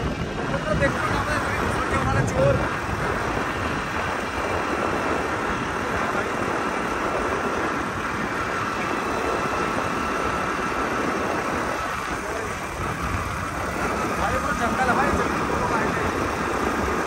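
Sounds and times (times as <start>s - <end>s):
motorcycle engine running: 0.0s - 17.0s
wind buffeting microphone: 0.0s - 17.0s.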